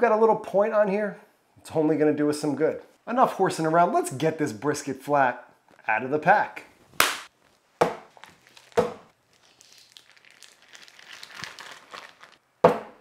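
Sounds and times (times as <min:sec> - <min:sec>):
plastic packaging crinkling and tearing: 0:07.4 - 0:12.4.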